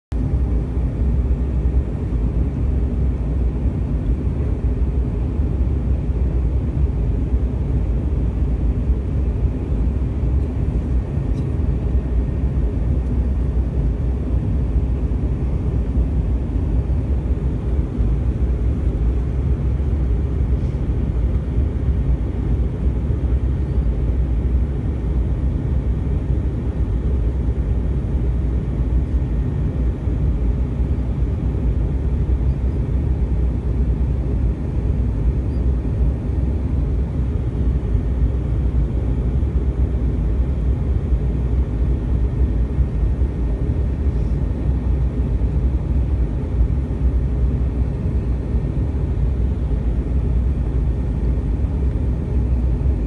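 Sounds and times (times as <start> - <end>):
aircraft cabin roar: 0.1 - 53.0.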